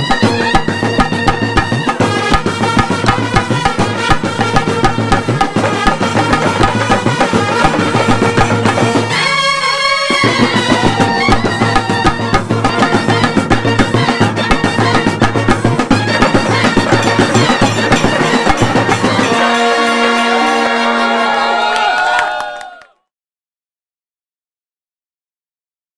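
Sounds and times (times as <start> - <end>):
bass drum and snare drums: 0.0 - 9.2, 10.1 - 19.6
trumpets and clarinets: 0.0 - 22.6.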